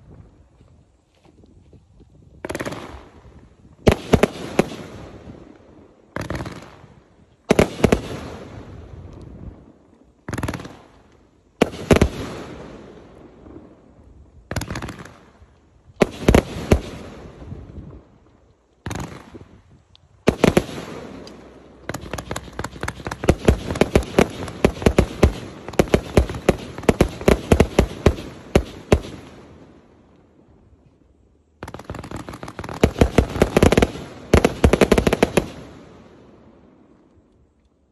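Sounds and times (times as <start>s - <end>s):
fireworks launch reports and bursts: 2.4s - 11.0s, 18.8s - 30.0s, 31.6s - 36.3s.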